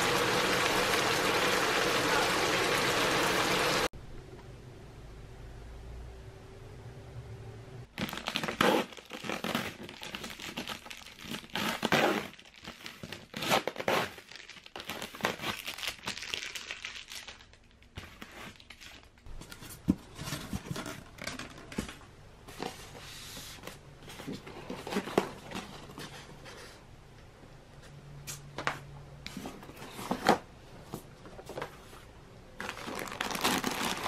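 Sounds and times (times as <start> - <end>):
styrofoam box crinkling: 7.9 - 21.9, 32.6 - 34.0
packing tape ripping: 8.0 - 19.0, 32.6 - 34.0.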